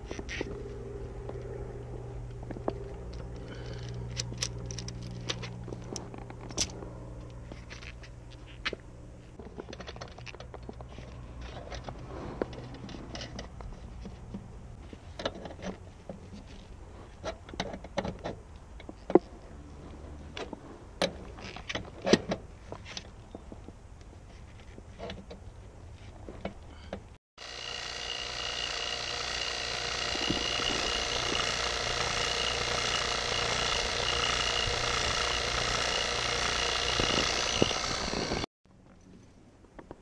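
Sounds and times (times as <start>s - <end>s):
steady low hum: 0.0s - 9.5s, 26.6s - 38.5s.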